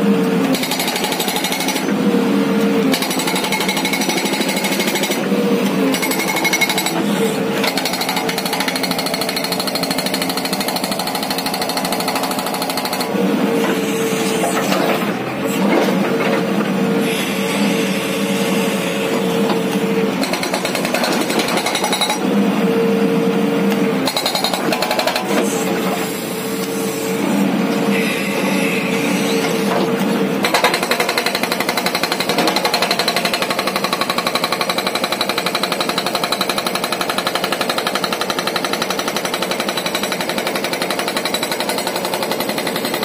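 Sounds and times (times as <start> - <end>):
hydraulic rock breaker hammering: 0.5 - 2.0, 2.8 - 13.8, 20.1 - 22.3, 24.0 - 25.9, 29.5 - 43.0.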